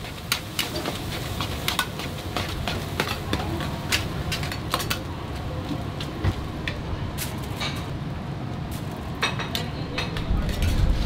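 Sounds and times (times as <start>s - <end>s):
metal utensils clanking against wok: 0.0s - 5.1s, 6.6s - 7.9s, 9.1s - 11.0s
steady low rumble: 10.1s - 11.0s.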